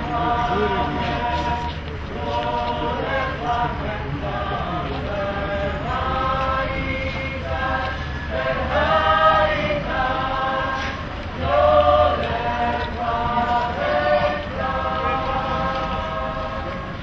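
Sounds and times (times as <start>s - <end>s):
choir singing held notes: 0.0s - 17.0s.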